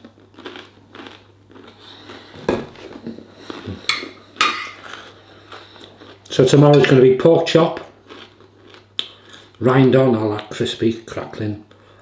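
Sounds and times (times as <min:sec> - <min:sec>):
person chewing: 0:00.0 - 0:07.0, 0:07.8 - 0:09.6.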